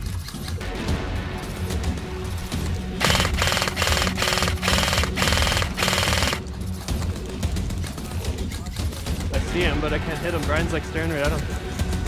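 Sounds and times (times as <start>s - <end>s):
airsoft gun firing bursts: 3.0s - 6.4s.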